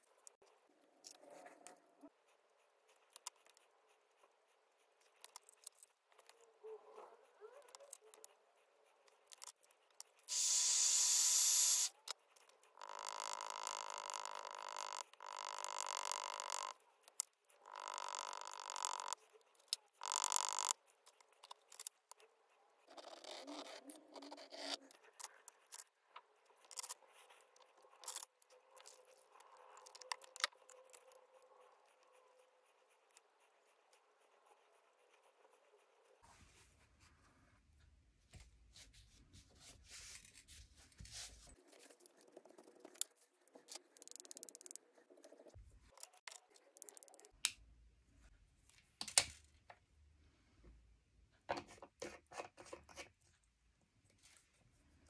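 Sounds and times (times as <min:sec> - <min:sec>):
brush pen scratching on card: 0:00.0 - 0:06.5, 0:07.2 - 0:36.7, 0:39.6 - 0:47.4
spray bottle spritzes: 0:10.3 - 0:11.9.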